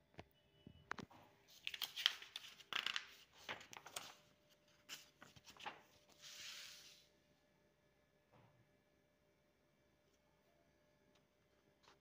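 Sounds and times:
paper pages rustling: 0:01.5 - 0:07.0
soft paper swish: 0:03.3 - 0:07.1.

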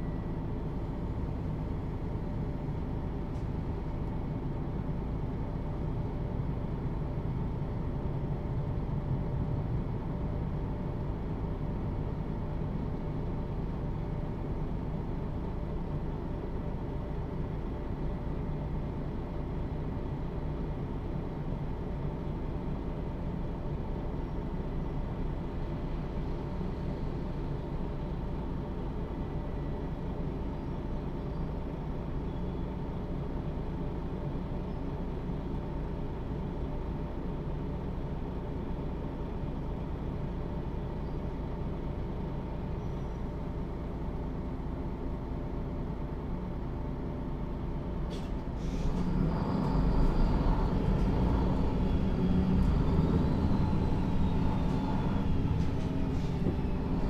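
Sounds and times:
bus diesel engine running: 0:00.0 - 0:57.0.

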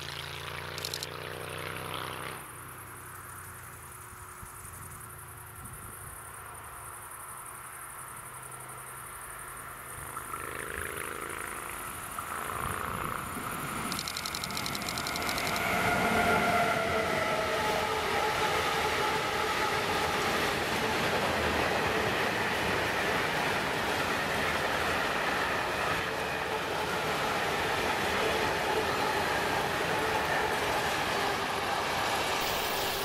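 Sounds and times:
electric locomotive passing: 0:08.1 - 0:33.0
wagons rolling over rails: 0:12.6 - 0:16.6.

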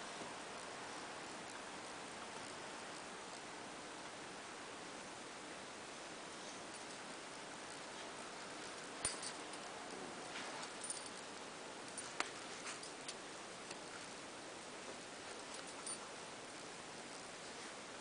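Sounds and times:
steady hiss: 0:00.0 - 0:18.0
soft rustling: 0:06.3 - 0:16.2.

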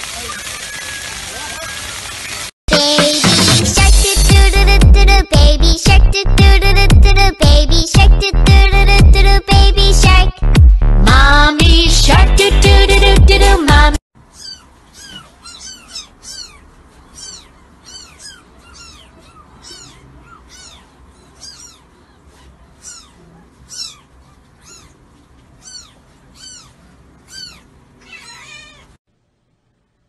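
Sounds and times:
kitten mewing: 0:14.3 - 0:25.0, 0:25.6 - 0:28.9.

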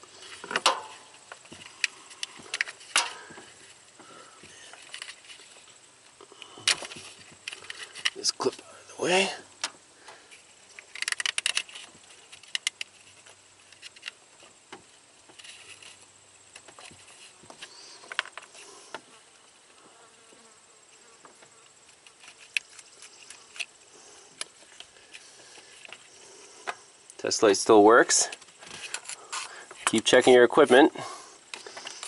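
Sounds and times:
crackling plastic clicks: 0:00.4 - 0:03.3, 0:06.2 - 0:08.6, 0:10.7 - 0:14.2, 0:21.9 - 0:23.8.

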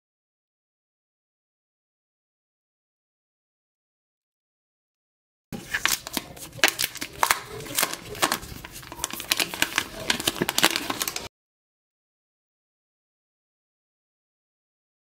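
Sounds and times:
plastic film crackling as peeled: 0:05.6 - 0:11.3.

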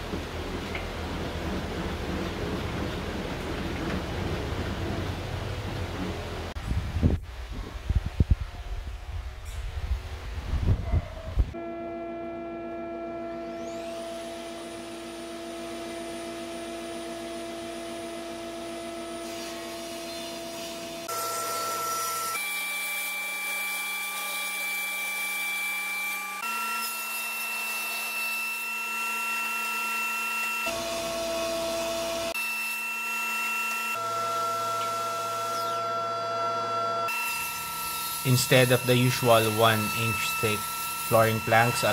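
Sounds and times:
table saw motor whine: 0:11.5 - 0:41.9.

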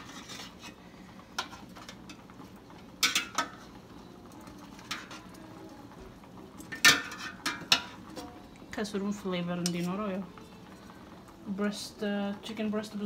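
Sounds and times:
utensils knocking on roasting pan: 0:03.0 - 0:03.6, 0:06.7 - 0:08.3.

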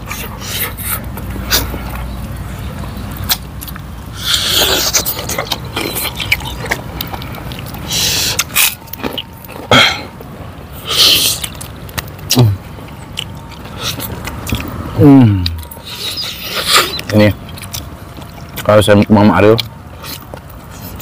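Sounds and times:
wet chewing: 0:00.0 - 0:21.0
low grunt: 0:09.7 - 0:10.1.

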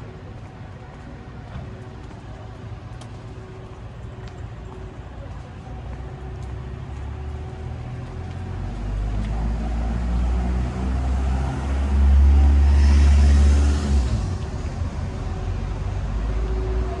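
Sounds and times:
vehicle passing close by: 0:08.6 - 0:17.0.

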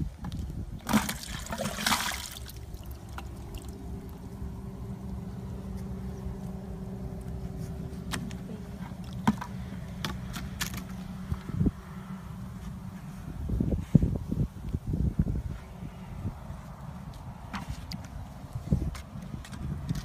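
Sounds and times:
water and mud pouring into bucket: 0:00.8 - 0:03.8
steady low hum: 0:01.4 - 0:17.4.

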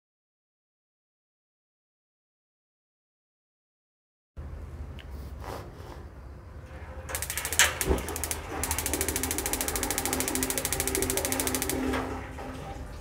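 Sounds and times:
electronic igniter sparking clicks: 0:07.1 - 0:12.0
sharp click: 0:07.2 - 0:11.9.

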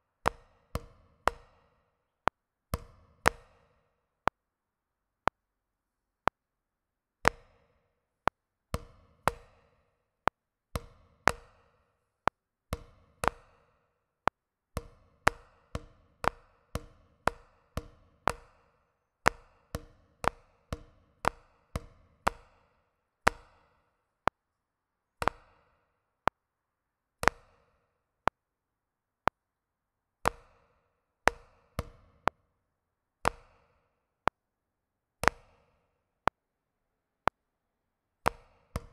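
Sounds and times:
drumsticks tapping a practice pad: 0:00.2 - 0:01.7, 0:12.8 - 0:13.6, 0:14.2 - 0:22.6, 0:25.2 - 0:25.6.

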